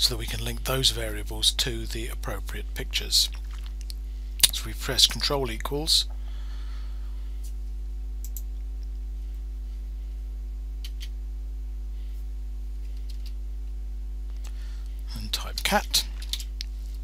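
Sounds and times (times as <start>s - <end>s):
steady low hum: 0.0s - 17.0s
computer keyboard clicks: 8.2s - 8.5s, 10.8s - 11.1s, 12.9s - 13.4s.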